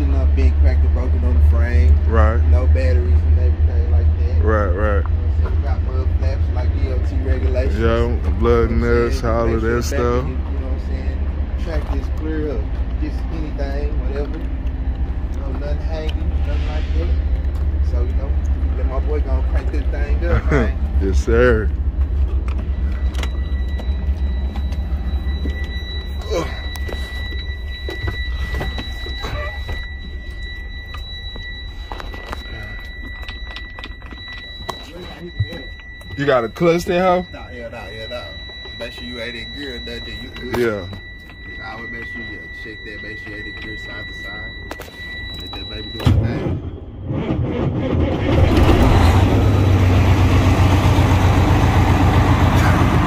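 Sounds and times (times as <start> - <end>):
diesel truck engine idling: 0.0 - 33.7, 48.3 - 53.0
high-pitched tone: 0.0 - 53.0.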